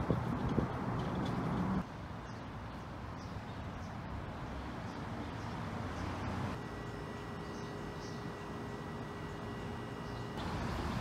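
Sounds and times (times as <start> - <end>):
low outdoor hum: 0.0 - 11.0.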